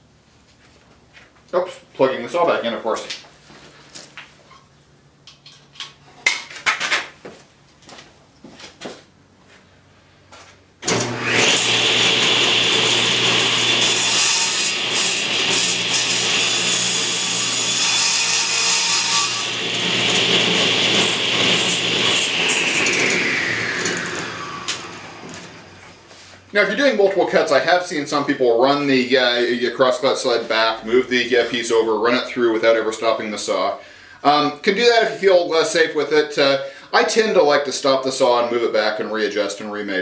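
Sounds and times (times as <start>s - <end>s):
table saw whining: 10.8s - 26.1s.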